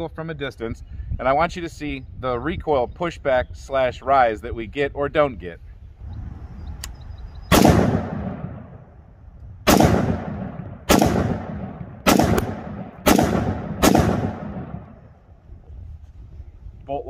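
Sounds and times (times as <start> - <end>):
rifle shots echoing: 7.5 - 8.9, 9.6 - 15.2.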